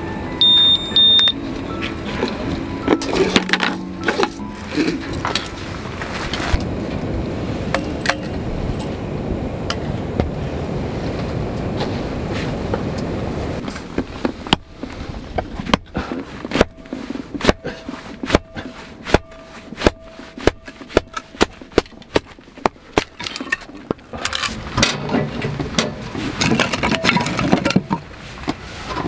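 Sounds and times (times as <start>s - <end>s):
split wood clattering: 13.7s - 28.1s
hatchet chopping log: 15.6s - 23.2s.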